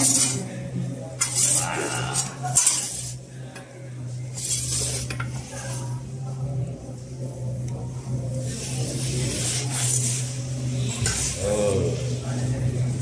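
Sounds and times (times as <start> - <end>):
metal peel scraping on stone: 1.2 - 3.2.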